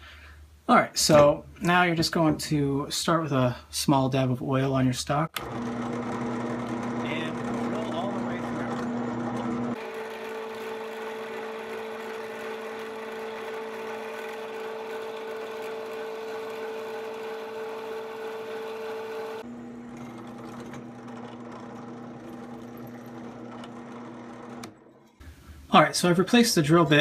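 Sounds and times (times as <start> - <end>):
drill press motor hum: 5.4 - 25.5.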